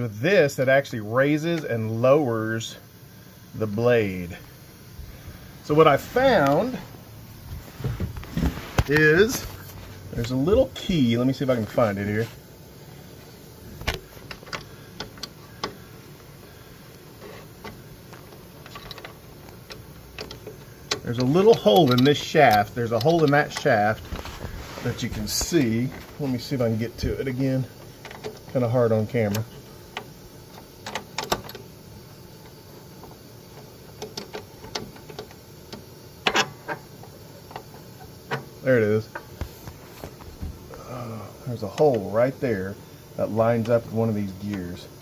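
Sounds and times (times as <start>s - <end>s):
metallic clicks of saw gears: 18.6s - 24.0s.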